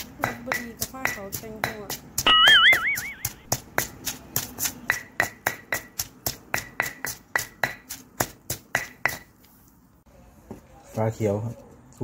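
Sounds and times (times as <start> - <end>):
stone pestle pounding in mortar: 0.0 - 9.4.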